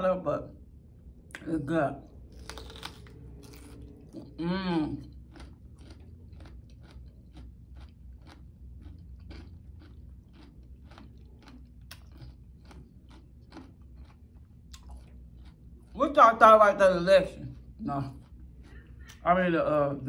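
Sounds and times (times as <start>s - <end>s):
person chewing crunchy food: 2.1s - 16.2s, 17.2s - 19.2s.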